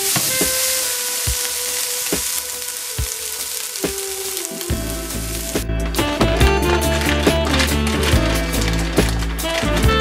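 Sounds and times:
steak strips sizzling in a skillet: 0.0 - 5.6
background music with a beat: 0.1 - 10.0.

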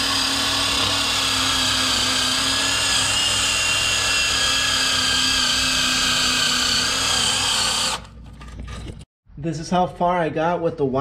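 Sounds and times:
drill motor whine: 0.0 - 8.1.

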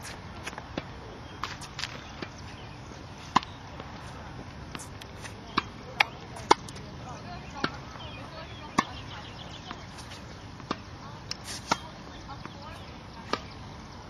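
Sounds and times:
tennis balls struck by rackets: 0.0 - 13.7
steady outdoor hiss: 0.0 - 14.0.

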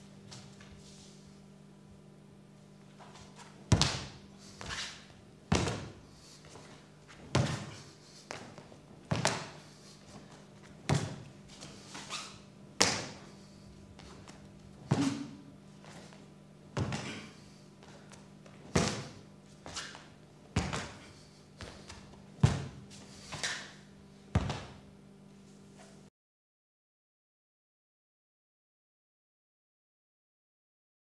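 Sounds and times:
steady low hum: 0.0 - 26.1
sharp thuds of footwork: 3.7 - 12.1, 12.8 - 13.3, 14.0 - 16.2, 16.8 - 18.1, 18.7 - 20.0, 20.6 - 23.8, 24.4 - 24.8.

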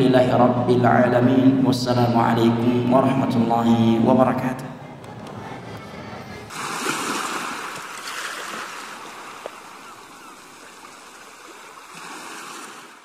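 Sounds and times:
rushing water-like noise: 6.5 - 13.0.

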